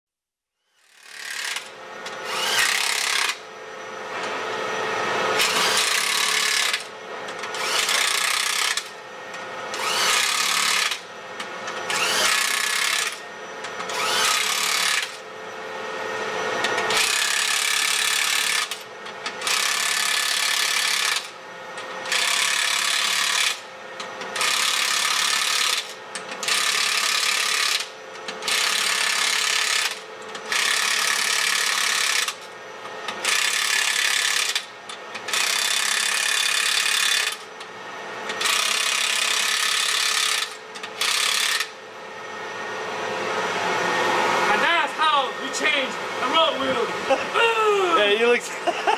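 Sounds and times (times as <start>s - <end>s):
impact wrench hammering: 0.9s - 3.4s, 5.4s - 15.2s, 16.6s - 32.5s, 33.1s - 37.5s, 38.3s - 41.8s.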